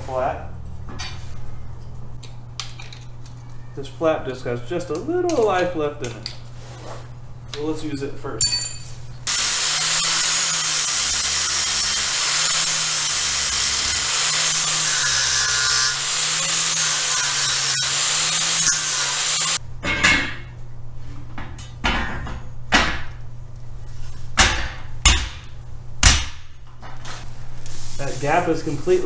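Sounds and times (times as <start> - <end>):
angle grinder grinding steel: 9.3 - 19.6.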